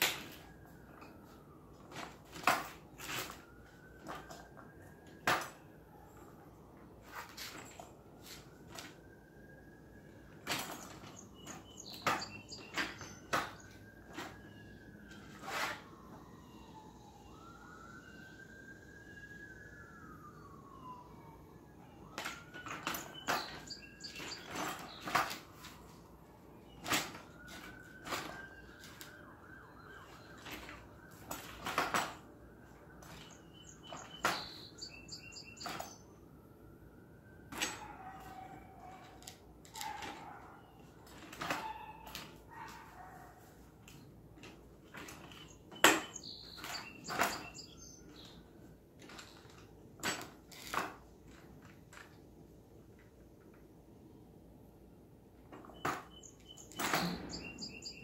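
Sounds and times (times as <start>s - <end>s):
faint siren: 0.0s - 58.0s
metal chair frame clicking and rattling: 10.3s - 14.4s, 22.2s - 25.8s, 30.4s - 32.3s, 43.8s - 48.4s, 49.0s - 52.1s.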